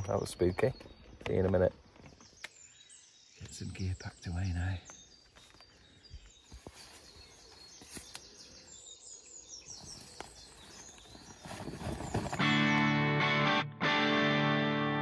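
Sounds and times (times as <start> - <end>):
small birds chirping: 0.0 - 13.0
tent fabric rustling: 9.8 - 12.6.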